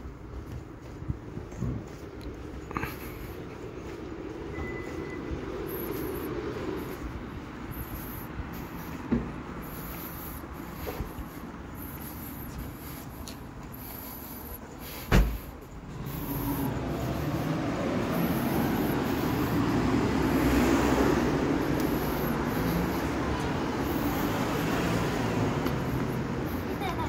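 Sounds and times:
street traffic: 0.0s - 27.0s
sharp thump: 15.0s - 15.5s.

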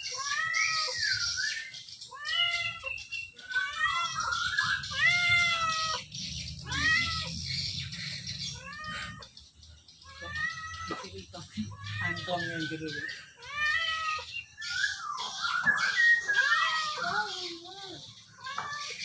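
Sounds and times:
kitten meowing: 3.5s - 6.0s, 6.6s - 7.4s, 10.1s - 12.8s, 13.4s - 14.3s.

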